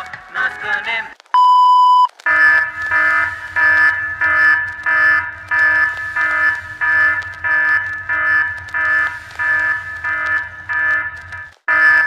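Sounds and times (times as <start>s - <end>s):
high beep: 1.4s - 2.1s
harsh buzzy alarm tone: 1.4s - 12.0s.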